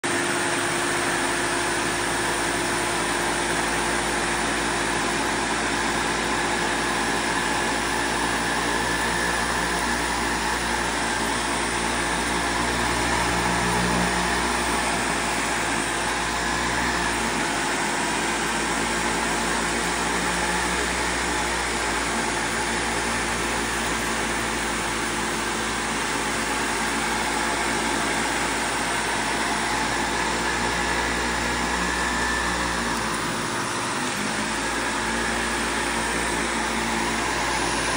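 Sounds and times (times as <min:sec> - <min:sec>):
vacuum cleaner running: 0:00.0 - 0:37.9.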